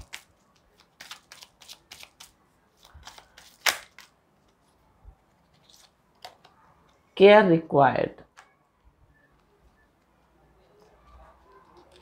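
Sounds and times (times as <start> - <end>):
cards being shuffled: 0.0 - 4.6, 5.3 - 6.6, 9.4 - 12.0
sharp card click: 3.1 - 4.1.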